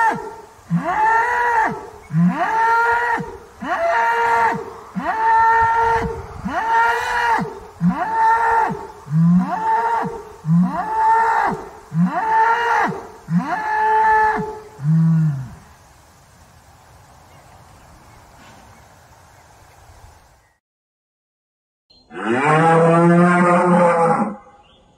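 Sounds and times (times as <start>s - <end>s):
bull bellowing: 0.0s - 15.6s, 22.1s - 24.6s.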